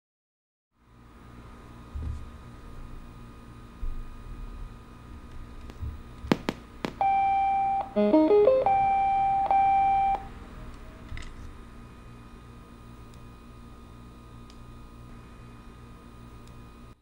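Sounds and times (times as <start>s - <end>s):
long steady beep: 7.0s - 10.3s
rising electronic notes: 7.8s - 10.2s.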